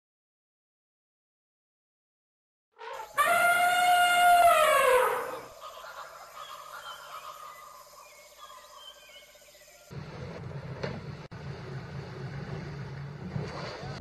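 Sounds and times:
elephant trumpeting: 2.8 - 6.1.

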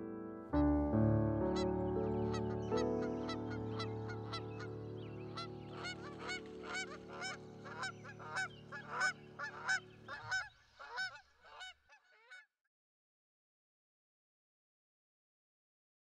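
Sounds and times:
sustained music chord: 0.0 - 6.2
geese honking: 1.5 - 11.8.

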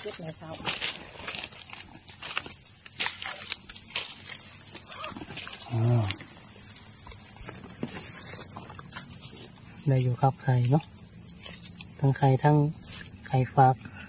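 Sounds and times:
insects droning: 0.0 - 14.0.

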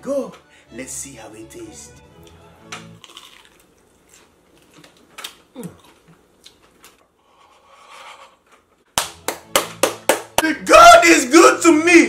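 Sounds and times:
faint chewing: 3.0 - 8.7.

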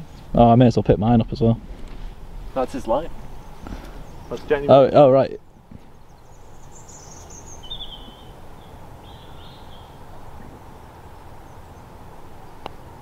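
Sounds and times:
faint bird calling: 2.8 - 12.7.

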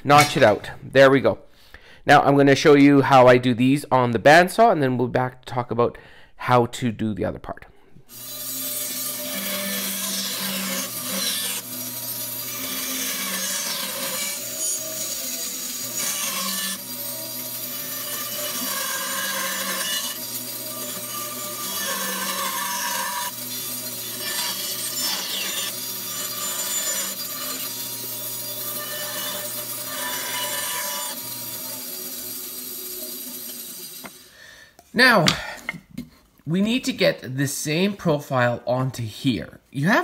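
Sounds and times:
bandsaw cutting wood: 8.1 - 34.4.

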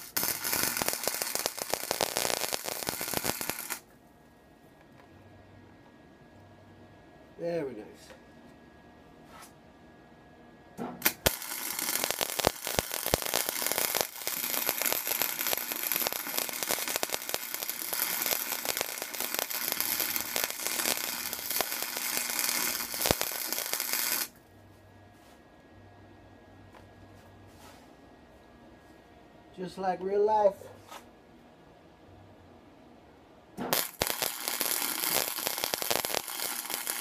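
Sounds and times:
welding arc pops: 0.0 - 3.8, 10.8 - 24.4, 33.6 - 37.0
arc welding crackle: 0.0 - 3.9, 11.0 - 24.4, 33.6 - 37.0.

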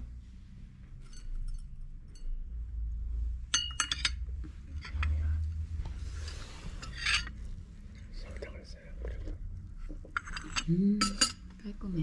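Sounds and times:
teaspoon clinking against teacup: 3.6 - 4.2, 10.2 - 11.4.

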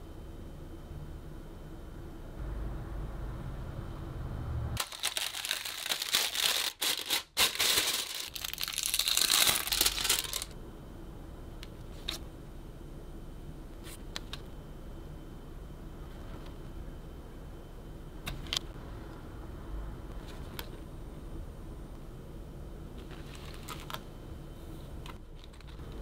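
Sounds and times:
plastic wrapping crinkling: 4.8 - 10.6.

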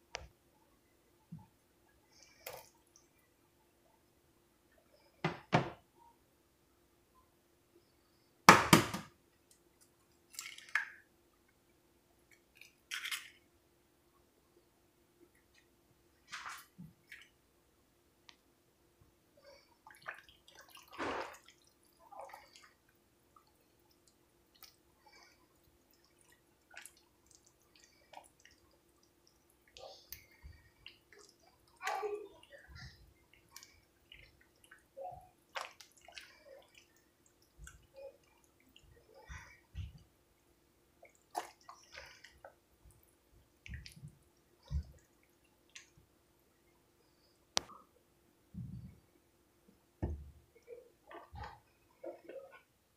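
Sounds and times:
spatula stirring wet mixture: 19.5 - 46.2, 50.0 - 52.8.

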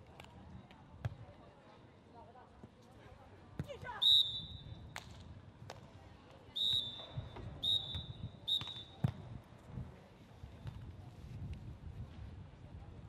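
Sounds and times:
referee's whistle blasts: 4.0 - 4.7, 6.6 - 8.9.

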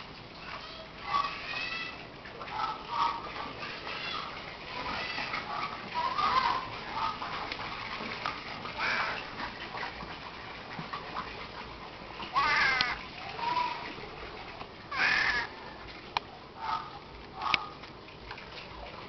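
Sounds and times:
harsh animal calls: 1.0 - 7.4, 8.7 - 9.4, 12.3 - 13.9, 14.9 - 15.6, 16.6 - 17.8.

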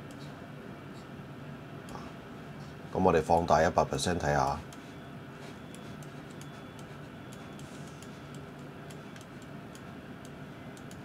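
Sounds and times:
low steady hum: 0.0 - 11.0
computer mouse clicks: 5.7 - 11.0.

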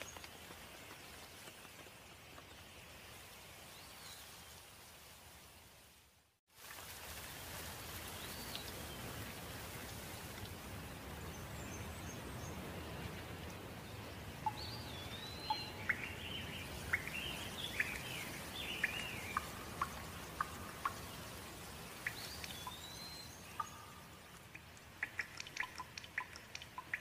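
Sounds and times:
rain falling on foliage: 0.0 - 27.0
bird chirping: 14.4 - 27.0.

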